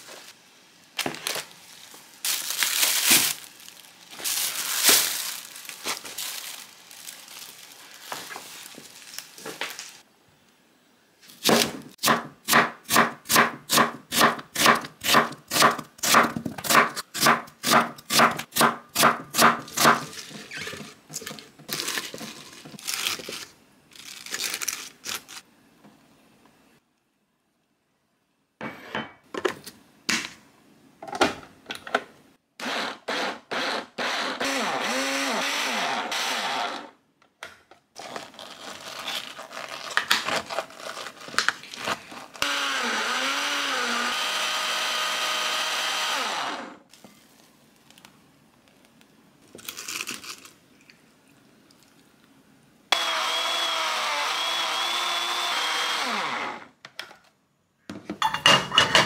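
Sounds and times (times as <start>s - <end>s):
electric blender running: 42.4s - 46.8s, 53.0s - 56.6s.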